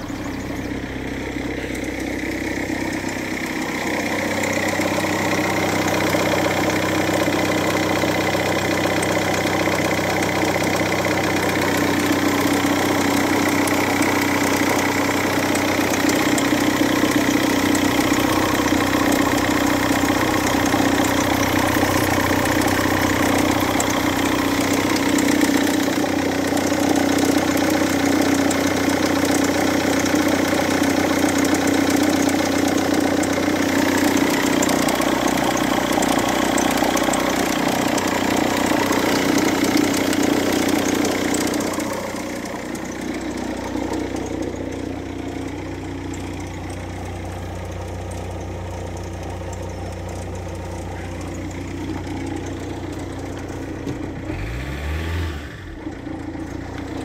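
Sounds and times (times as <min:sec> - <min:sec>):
diesel engine idling: 0:00.0 - 0:57.0.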